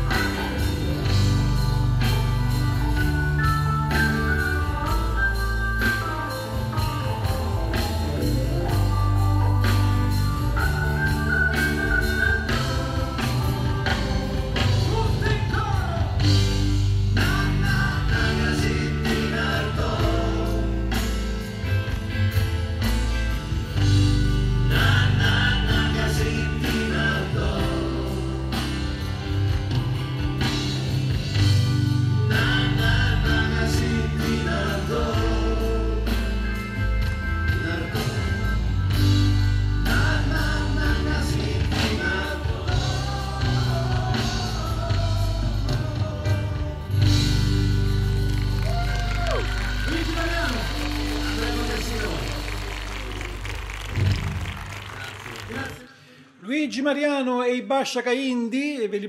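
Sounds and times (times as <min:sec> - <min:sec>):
live band playing: 0:00.0 - 0:56.2
men singing: 0:07.2 - 0:21.3, 0:24.5 - 0:29.4, 0:31.3 - 0:36.8, 0:37.4 - 0:38.8, 0:39.8 - 0:47.7.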